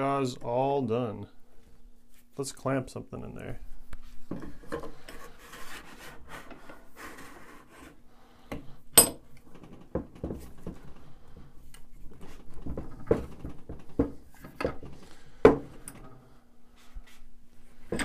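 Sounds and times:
wood scraping and rubbing: 4.8s - 8.0s.

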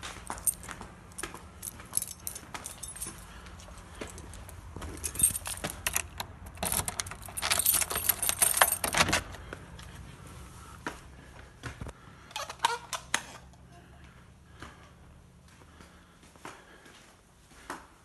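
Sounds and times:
keys jangling: 0.0s - 9.5s.

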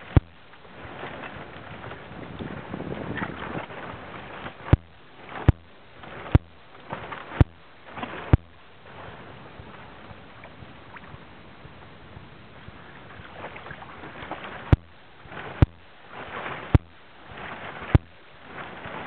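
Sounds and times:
faint water: 0.0s - 19.0s
wind noise: 0.0s - 19.0s
paddle stroke swish and knock: 13.4s - 19.0s.

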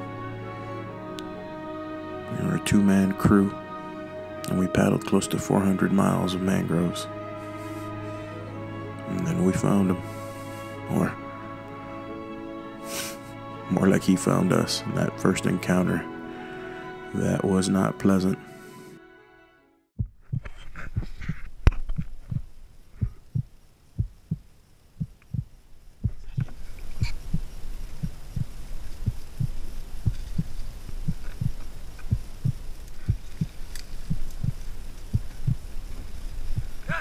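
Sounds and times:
steady hiss: 0.0s - 15.2s, 20.4s - 37.0s
dull low thumps: 20.0s - 37.0s.

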